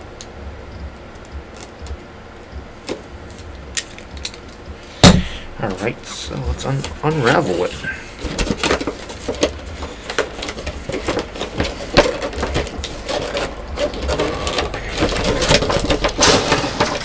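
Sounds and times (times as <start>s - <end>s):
packaging crinkling and rustling: 2.8s - 4.7s, 5.6s - 17.0s.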